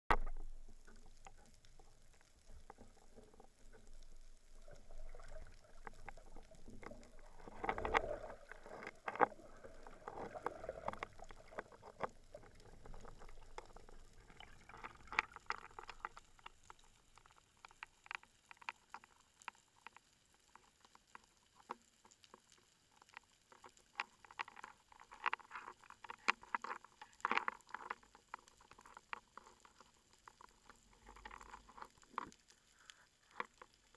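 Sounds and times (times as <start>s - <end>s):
small sharp underwater clicks: 0.1s - 33.9s
rush of water: 4.6s - 16.4s.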